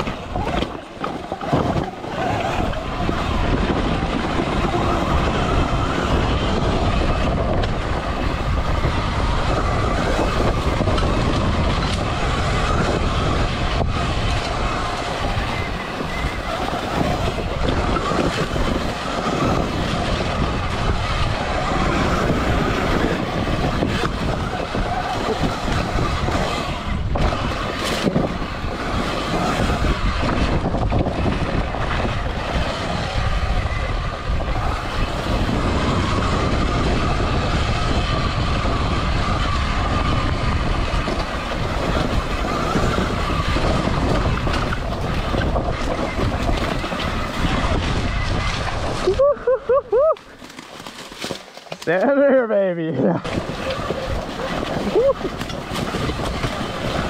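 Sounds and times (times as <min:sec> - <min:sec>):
wind rush on microphone: 0:00.0 - 0:57.0.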